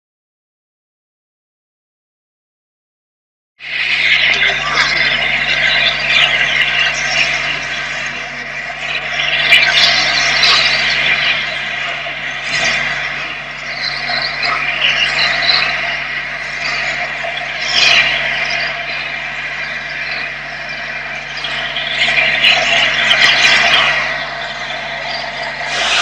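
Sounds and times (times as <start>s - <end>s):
steady low hum: 3.6s - 26.0s
locomotive exhaust beats: 3.8s - 26.0s
steam hissing: 22.9s - 26.0s.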